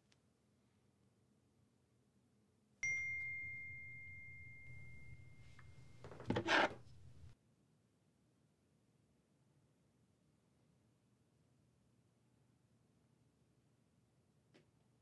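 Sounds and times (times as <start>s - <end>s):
bell-like ding: 2.8s - 6.0s.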